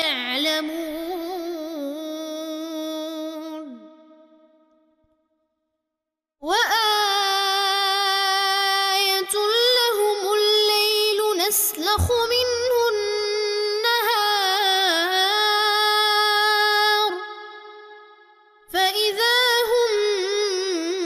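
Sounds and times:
man reciting melodically: 11.8s - 13.0s.

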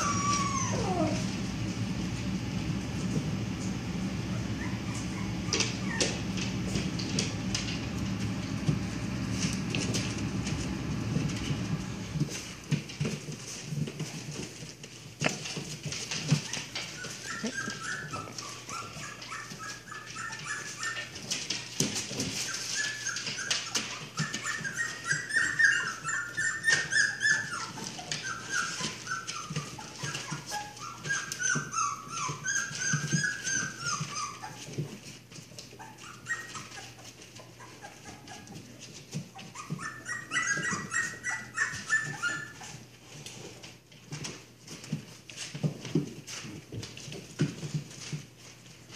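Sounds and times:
puppies squealing and yipping: 0.0s - 1.3s, 4.3s - 6.4s, 16.0s - 45.6s
paws scratching on newspaper: 0.0s - 48.9s.

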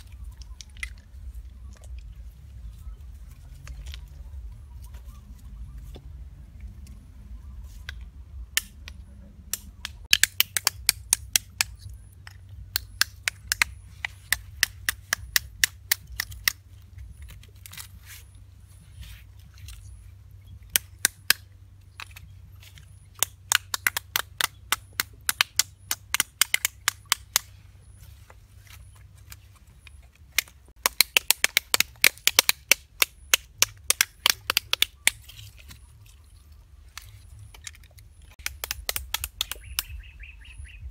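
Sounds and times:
snail shells cracking: 9.5s - 16.6s, 30.3s - 35.8s, 36.9s - 40.0s.

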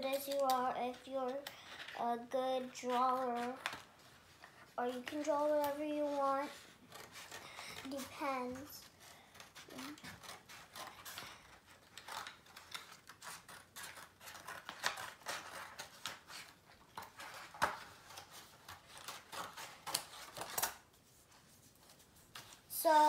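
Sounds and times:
scissors snipping stiff paper: 0.0s - 0.6s, 6.9s - 20.8s
paper rustling: 0.0s - 23.0s.

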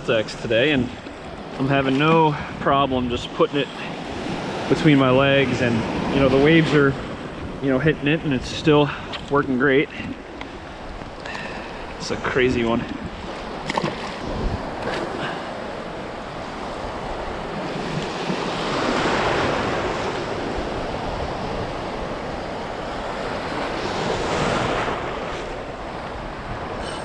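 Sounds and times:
ocean surf breaking: 0.0s - 27.0s
wind on microphone: 11.9s - 15.3s, 16.2s - 27.0s.

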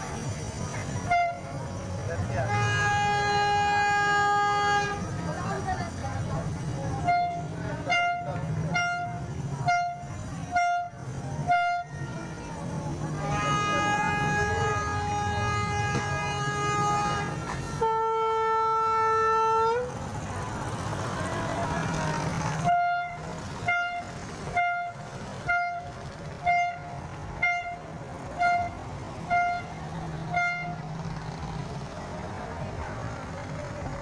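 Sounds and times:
horn blasts and short toots: 1.0s - 1.6s, 7.0s - 12.4s, 13.2s - 19.9s, 22.6s - 30.9s.

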